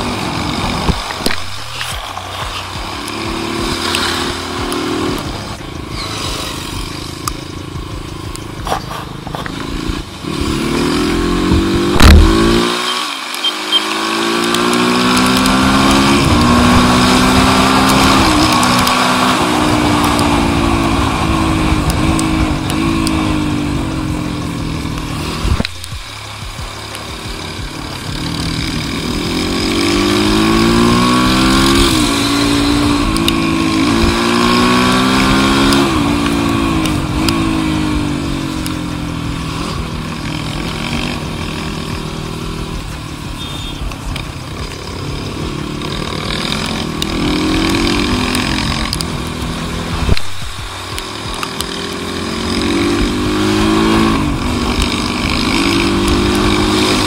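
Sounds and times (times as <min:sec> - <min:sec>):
motorcycle engine revving: 0:00.0 - 0:57.0
loud bump: 0:11.9 - 0:12.6.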